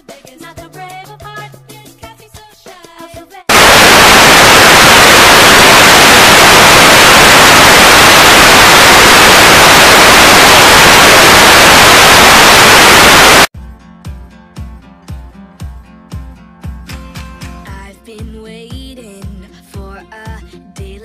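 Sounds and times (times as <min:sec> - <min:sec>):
television static hiss: 0:03.5 - 0:13.5.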